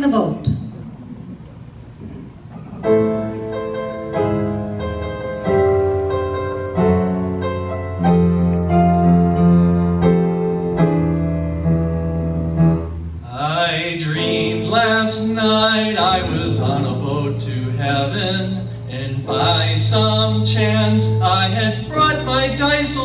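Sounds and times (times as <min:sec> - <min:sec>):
piano chords: 0:00.0 - 0:23.0
man singing: 0:13.3 - 0:23.0.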